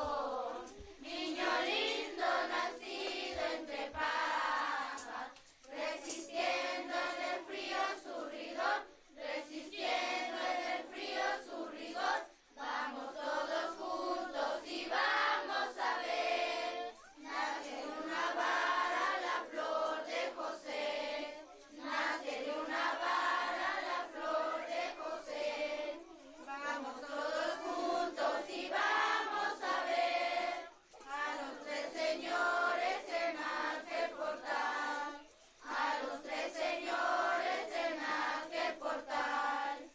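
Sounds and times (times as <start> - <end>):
children and adults singing: 0.0 - 39.9.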